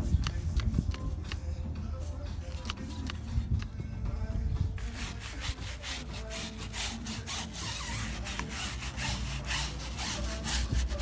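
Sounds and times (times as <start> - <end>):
brush scrubbing wet tire: 4.8 - 11.0.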